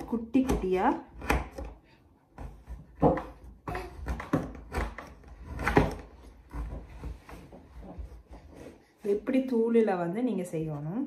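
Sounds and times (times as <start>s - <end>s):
knife chopping on wooden board: 0.0s - 7.1s.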